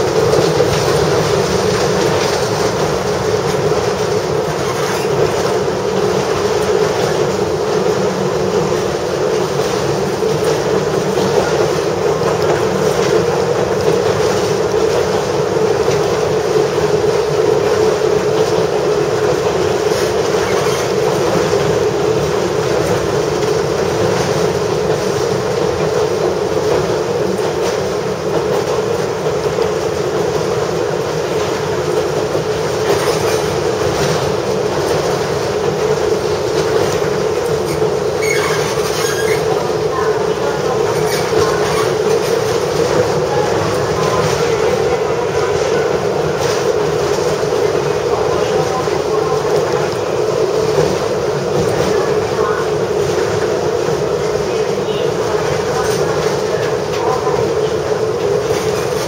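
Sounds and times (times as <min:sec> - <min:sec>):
diesel railcar engine drone: 0:00.0 - 0:59.0
train wheels on rails: 0:00.0 - 0:59.0.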